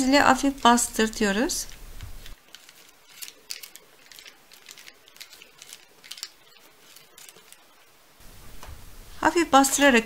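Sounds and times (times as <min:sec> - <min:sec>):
baking paper crinkling: 0:00.0 - 0:07.9.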